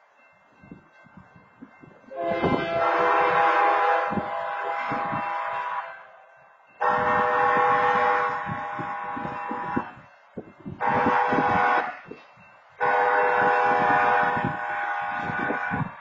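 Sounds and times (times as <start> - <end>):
railroad crossing horn blasts: 2.1 - 6.2, 6.8 - 10.0, 10.8 - 12.2, 12.8 - 16.0.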